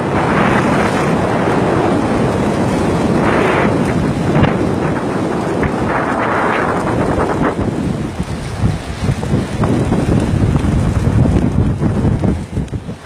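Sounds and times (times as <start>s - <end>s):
strong wind on microphone: 0.0s - 13.0s
waves washing: 0.0s - 13.0s.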